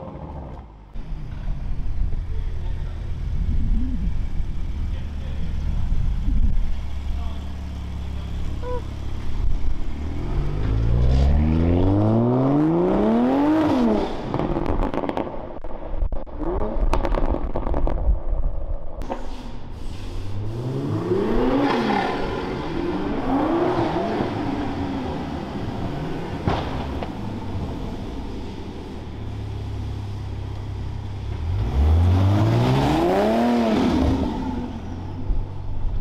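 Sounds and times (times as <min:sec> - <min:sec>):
car engine accelerating: 0:00.6 - 0:15.2, 0:20.2 - 0:36.0
exhaust crackles and pops: 0:14.2 - 0:19.3.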